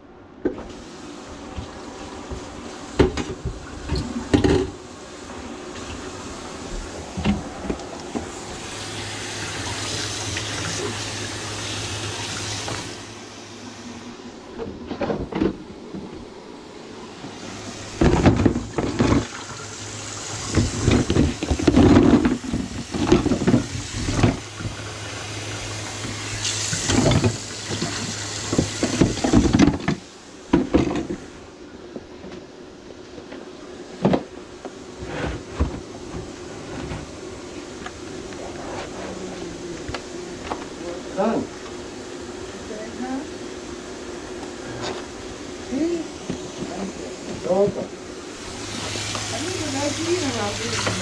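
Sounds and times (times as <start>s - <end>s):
water pouring into a sink: 8.5s - 13.1s, 17.9s - 29.8s, 48.4s - 51.0s.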